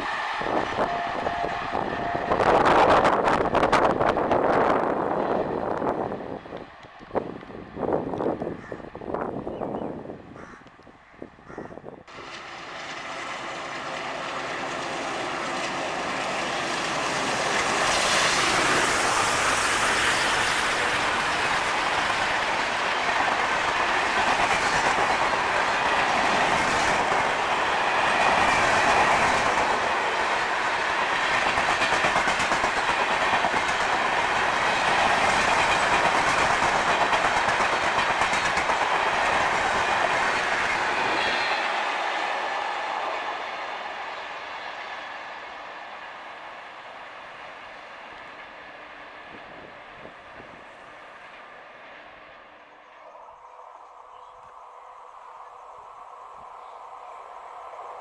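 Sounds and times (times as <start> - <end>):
diesel train passing: 0.0 - 58.0
wheels clacking over rail joints: 14.0 - 43.0.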